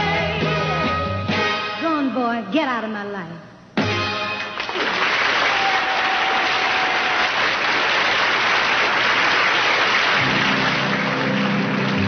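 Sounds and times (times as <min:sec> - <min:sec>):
audience applauding: 0:04.6 - 0:12.0
orchestra playing: 0:10.2 - 0:12.0.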